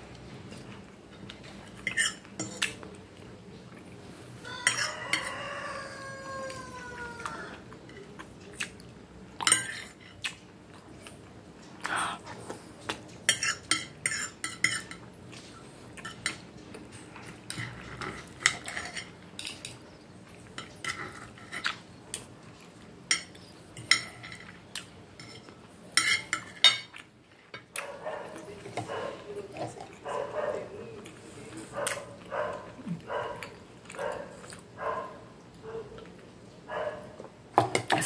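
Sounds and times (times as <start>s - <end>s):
cutlery clinking on a plate: 4.5s - 5.4s, 9.4s - 10.2s, 13.2s - 15.4s, 16.0s - 19.8s, 20.5s - 22.3s, 23.1s - 24.6s, 25.2s - 27.8s.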